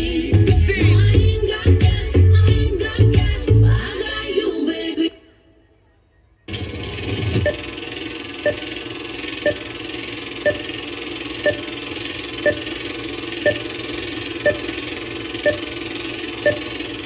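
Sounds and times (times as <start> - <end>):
film projector whir and crackle: 6.5 - 17.0
short beeps: 8.4 - 8.7, 10.4 - 10.7, 11.4 - 11.7, 12.4 - 12.7, 13.4 - 13.7, 14.4 - 14.7, 15.4 - 15.7, 16.4 - 16.7.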